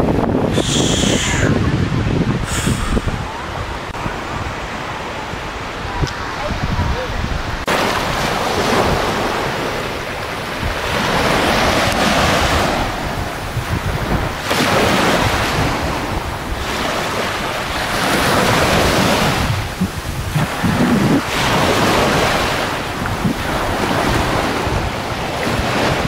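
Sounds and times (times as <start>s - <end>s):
surf washing up a beach: 0.0s - 26.0s
wind buffeting microphone: 0.0s - 26.0s.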